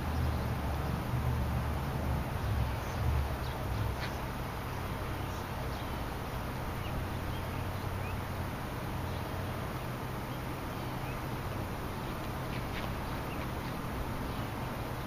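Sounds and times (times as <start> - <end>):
faint bird chirps: 6.7 - 8.3.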